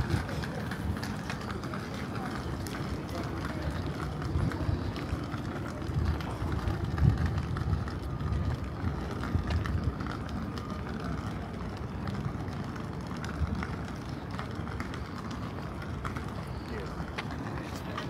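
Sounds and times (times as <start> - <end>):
urban background hum: 0.0 - 18.0
footsteps: 14.4 - 18.0.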